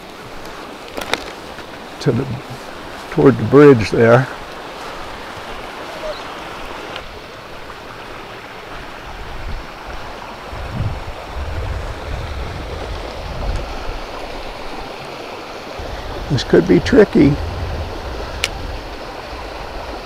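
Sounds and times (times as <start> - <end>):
creek running over rocks: 0.0 - 20.0
rumbling bumps on microphone: 17.3 - 18.9.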